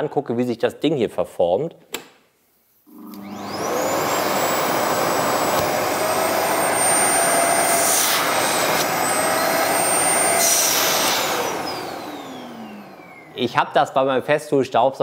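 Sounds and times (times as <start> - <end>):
vacuum cleaner motor whine: 2.9 - 13.7
vacuum suction rush: 3.0 - 13.6.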